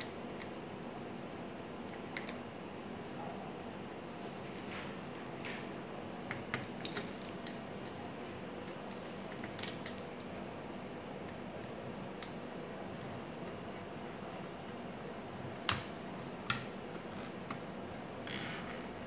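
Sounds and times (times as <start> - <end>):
steady background noise: 0.0 - 19.0.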